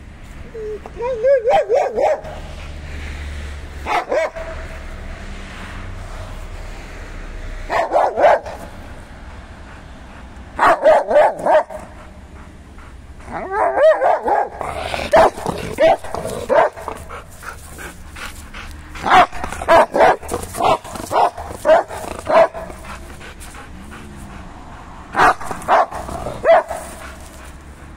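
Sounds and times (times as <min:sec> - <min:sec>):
dog whining: 0:00.4 - 0:01.7, 0:15.0 - 0:18.0
dog barking: 0:01.0 - 0:02.5, 0:03.8 - 0:04.7, 0:07.6 - 0:08.7, 0:10.6 - 0:12.0, 0:13.3 - 0:17.3, 0:19.0 - 0:23.0, 0:25.2 - 0:27.2.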